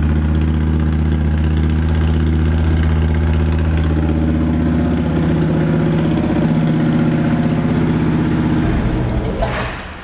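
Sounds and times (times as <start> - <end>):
motorcycle engine idling: 0.0 - 9.3.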